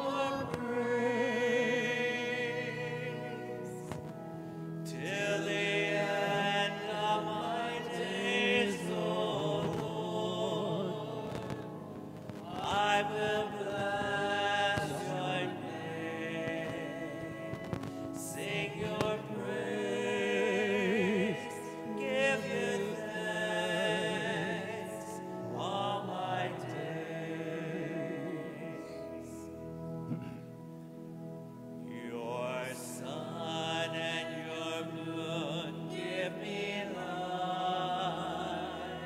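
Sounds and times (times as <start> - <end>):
person singing a hymn with vibrato: 0.0 - 30.6, 31.8 - 39.0
sustained instrumental accompaniment: 0.0 - 39.0.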